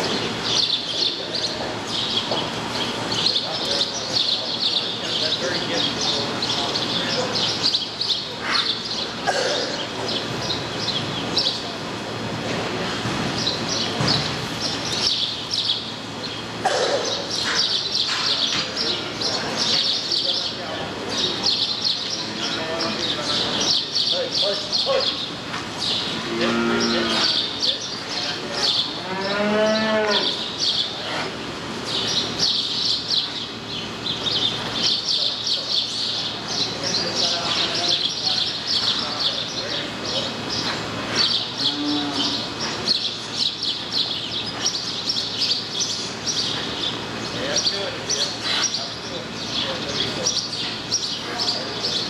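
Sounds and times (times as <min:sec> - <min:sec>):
low background noise: 0:00.0 - 0:52.0
small birds chirping: 0:00.0 - 0:52.0
calf mooing: 0:26.2 - 0:27.4, 0:29.0 - 0:30.4.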